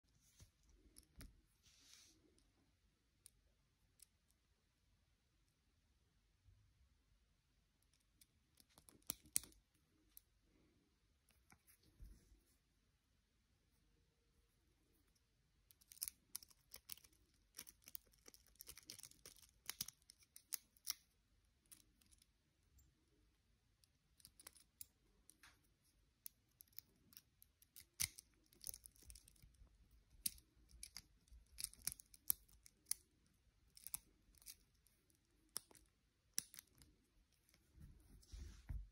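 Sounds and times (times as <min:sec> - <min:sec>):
lock pick clicking and scratching: 0:07.8 - 0:10.3, 0:15.7 - 0:22.3, 0:23.8 - 0:37.6.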